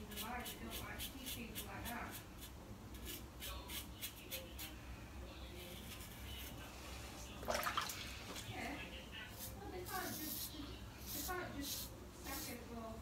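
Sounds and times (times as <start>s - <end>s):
razor scraping stubble: 0.0s - 4.8s, 9.4s - 12.7s.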